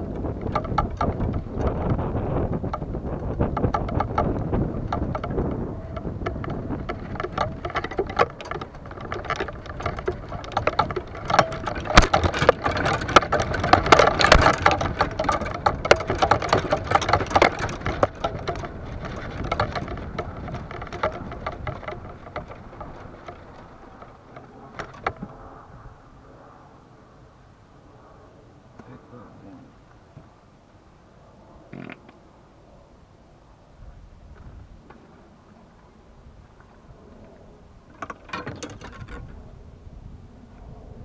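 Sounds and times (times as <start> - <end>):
golf clubs rattling in bag: 0.0 - 25.6.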